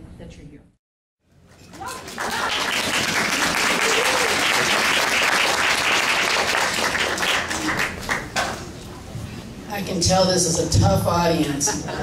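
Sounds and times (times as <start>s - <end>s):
audience clapping: 1.6s - 8.7s.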